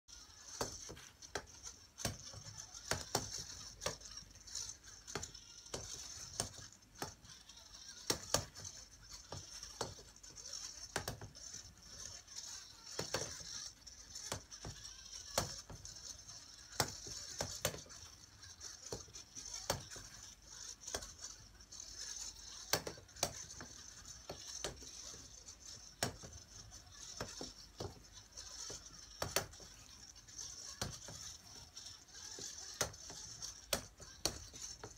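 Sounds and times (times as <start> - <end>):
robot balls knocking wooden frame: 22.4 - 29.8.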